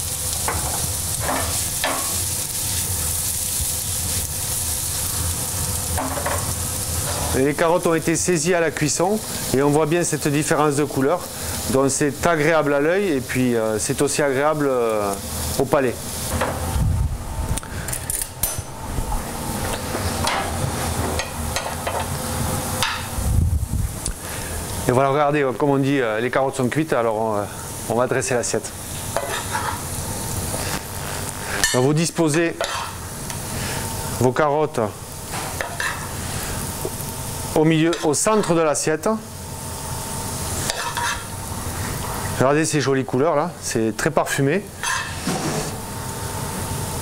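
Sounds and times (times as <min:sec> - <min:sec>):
carrots sizzling in oil: 0:00.0 - 0:16.8, 0:19.2 - 0:47.0
pan scraping: 0:06.0 - 0:07.6, 0:44.8 - 0:45.8.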